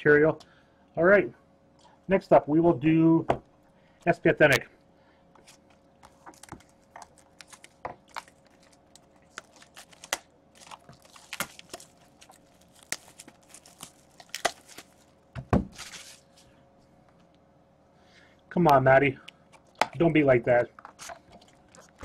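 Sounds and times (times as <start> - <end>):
faint steady hum: 0.0 - 22.0
wrapping crinkling and tearing: 5.4 - 16.6.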